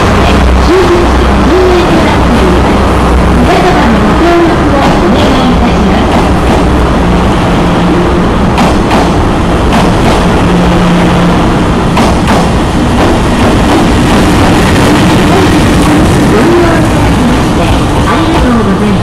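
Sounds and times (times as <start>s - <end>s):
train coaches rumbling past: 0.0s - 19.0s
train wheel clicks: 8.5s - 10.3s, 11.9s - 13.9s.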